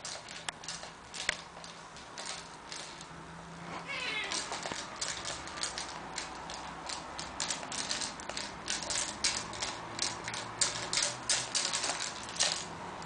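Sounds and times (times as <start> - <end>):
wire spring rattling: 0.0 - 3.2, 3.8 - 13.0
toy clicking and tapping: 4.0 - 13.0.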